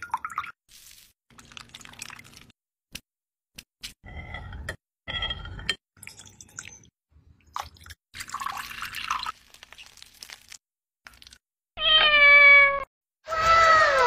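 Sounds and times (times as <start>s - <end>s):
liquid poured over ice: 0.0s - 2.6s, 7.6s - 11.4s
liquid pouring and dripping: 0.0s - 2.6s, 6.0s - 11.4s.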